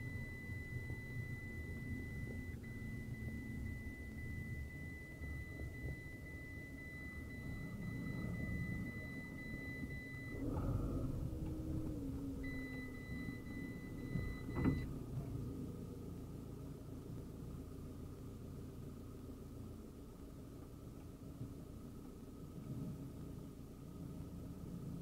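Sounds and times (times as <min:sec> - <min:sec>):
parking sensor beep: 0:00.0 - 0:14.9
van engine idling: 0:00.0 - 0:25.0.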